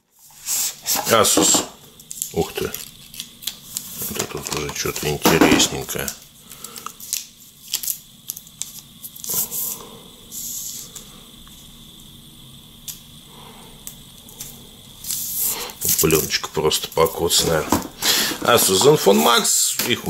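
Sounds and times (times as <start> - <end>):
plastic wrapping rustling: 0.3 - 9.5, 15.0 - 20.0.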